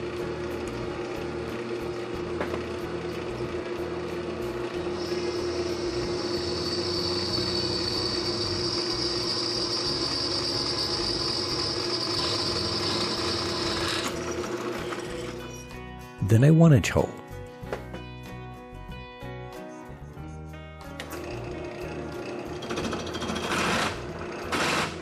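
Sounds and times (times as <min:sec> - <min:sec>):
drill press motor hum: 0:00.0 - 0:15.7, 0:21.0 - 0:25.0
high-pitched cutting squeal: 0:04.9 - 0:15.5.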